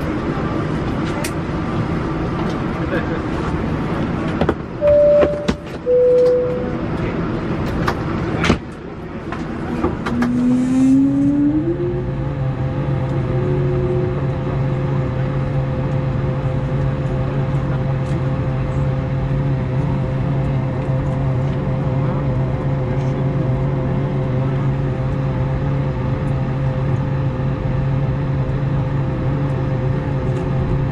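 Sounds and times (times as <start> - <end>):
short tones: 4.8 - 6.8.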